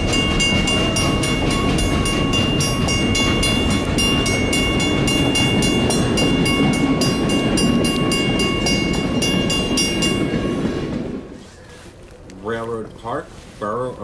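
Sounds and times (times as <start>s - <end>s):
crossing bell ringing: 0.0s - 11.3s
train coaches rumbling: 0.0s - 14.0s.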